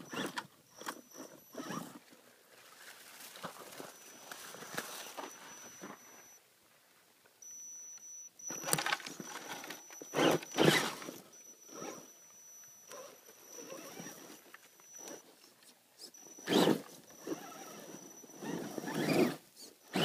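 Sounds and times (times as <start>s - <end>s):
electric motor high whine: 3.9s - 6.4s, 7.5s - 15.2s, 16.2s - 20.0s
tires scrabbling on dirt and rock: 16.5s - 20.0s.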